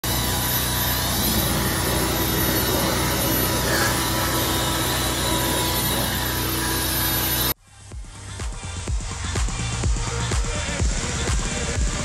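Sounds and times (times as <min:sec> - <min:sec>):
machine motor humming: 0:00.0 - 0:07.6.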